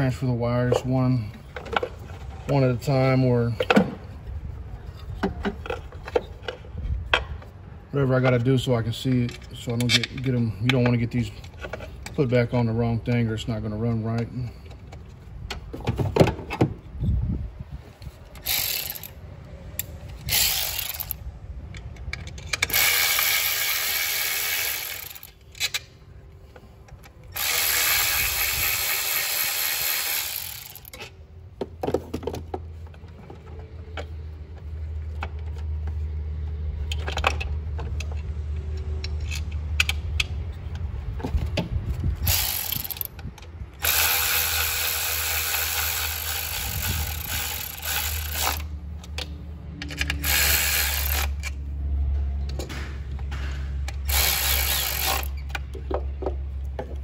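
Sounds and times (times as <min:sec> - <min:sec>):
cordless ratchet running: 0:18.4 - 0:19.2, 0:19.8 - 0:21.2, 0:22.5 - 0:25.7, 0:27.3 - 0:31.0, 0:42.2 - 0:48.7, 0:49.9 - 0:51.6, 0:54.0 - 0:55.4.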